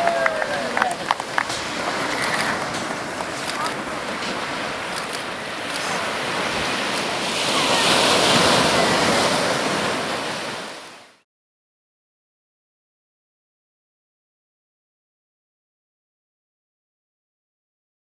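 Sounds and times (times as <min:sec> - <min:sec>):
small waves breaking on beach: 0:00.0 - 0:11.2.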